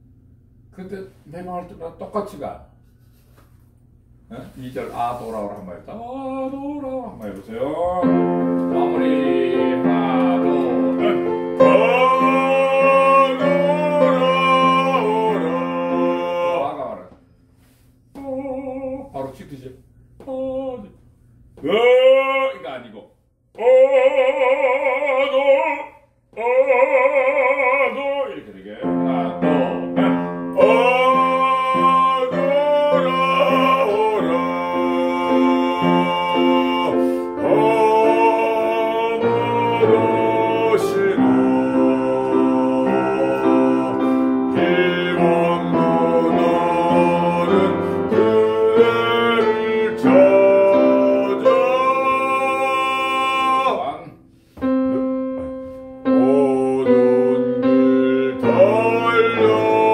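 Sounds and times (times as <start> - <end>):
man singing classical song: 5.9 - 17.2, 18.1 - 19.4, 21.6 - 22.7, 23.5 - 54.2, 54.9 - 59.9
piano accompaniment: 7.7 - 17.1, 28.7 - 59.9.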